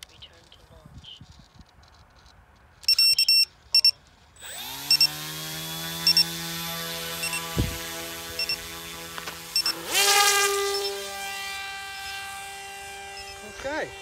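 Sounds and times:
short beeps: 2.8s - 4.0s
electric motor and propeller whine: 4.4s - 14.0s.

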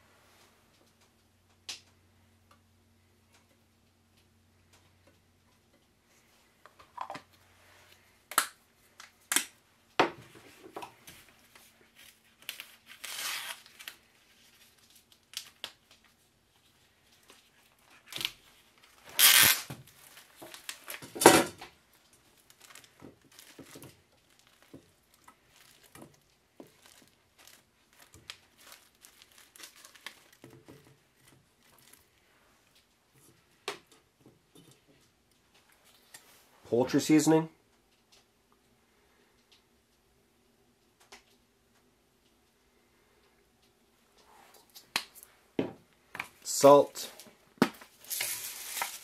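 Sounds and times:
plastic film and foam tray crinkling: 10.2s - 33.9s, 34.8s - 36.5s, 46.1s - 49.0s.

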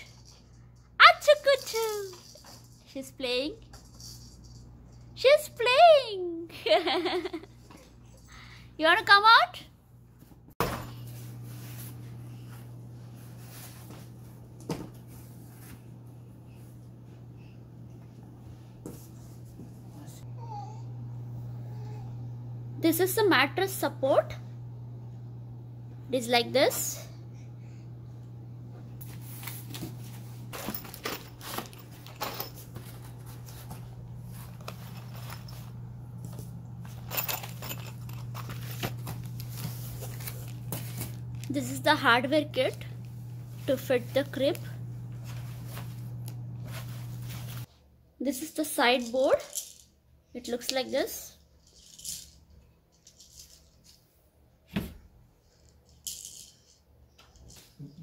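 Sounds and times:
steady low hum: 9.7s - 47.7s
cardboard and plastic rustling: 29.0s - 41.6s, 45.1s - 47.7s.

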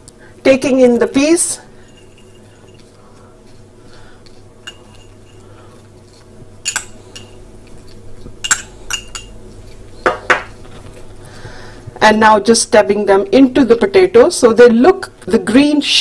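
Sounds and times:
metal spoon clinking glass bowl: 4.6s - 5.4s, 6.6s - 7.4s, 8.4s - 9.4s.

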